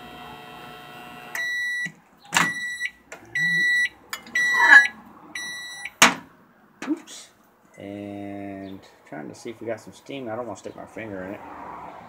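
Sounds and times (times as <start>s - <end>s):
microwave humming: 0.0s - 1.8s
microwave beeps: 1.4s - 6.0s.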